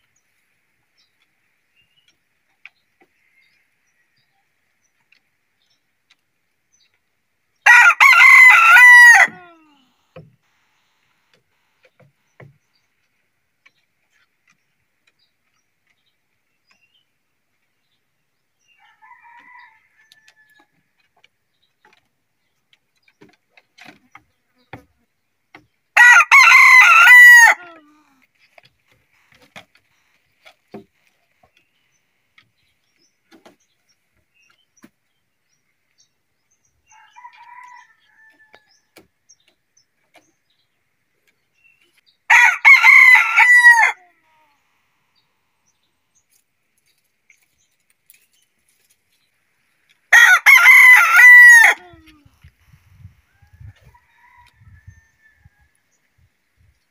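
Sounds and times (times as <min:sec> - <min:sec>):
rooster crowing: 0:07.7 - 0:09.6, 0:26.0 - 0:27.8, 0:36.9 - 0:38.6, 0:42.3 - 0:44.0, 0:50.1 - 0:51.9, 0:53.6 - 0:55.7.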